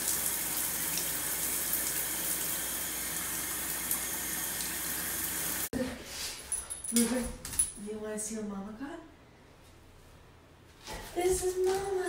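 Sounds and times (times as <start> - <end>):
shower water spraying into bathtub: 0.0 - 5.7.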